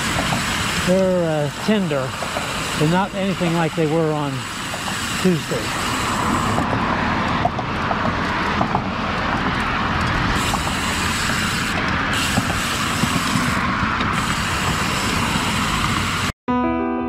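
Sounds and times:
bike tyre noise on concrete: 0:00.0 - 0:16.4
wind rush: 0:04.5 - 0:16.3.

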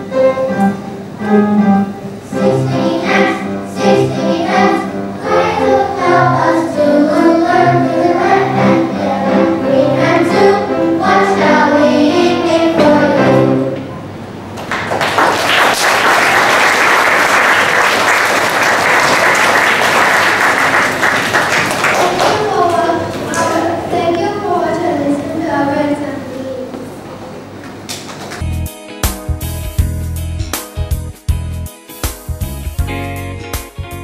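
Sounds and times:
backing music: 0:00.0 - 0:14.6, 0:28.4 - 0:34.0
children singing in unison: 0:02.2 - 0:13.8
applause: 0:14.6 - 0:23.4.

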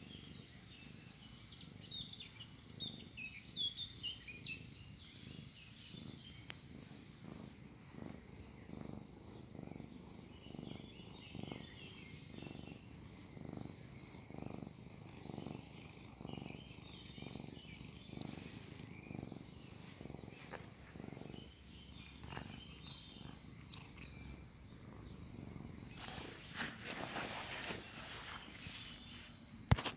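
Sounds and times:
cat purring: 0:00.0 - 0:29.9
rustle: 0:25.8 - 0:29.9.

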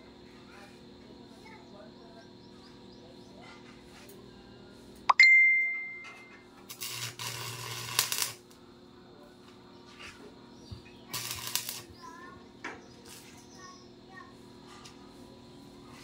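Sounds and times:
arc welding crackle and buzz: 0:06.4 - 0:16.0.

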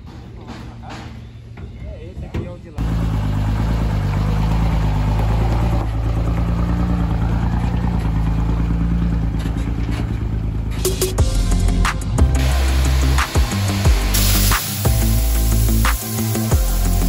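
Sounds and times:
diesel truck engine idling: 0:02.7 - 0:17.0.

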